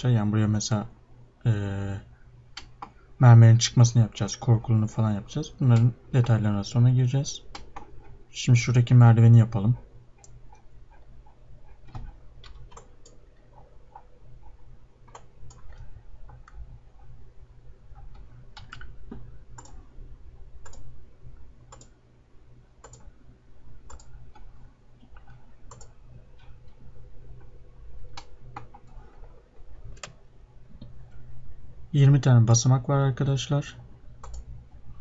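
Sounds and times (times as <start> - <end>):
low steady hum: 0.0 - 35.0
computer mouse clicking: 2.6 - 3.0, 7.5 - 8.2, 10.2 - 17.1, 17.9 - 19.8, 20.6 - 20.9, 21.7 - 22.0, 22.8 - 23.1, 23.8 - 26.8, 28.1 - 29.3, 29.9 - 30.2, 34.2 - 34.5.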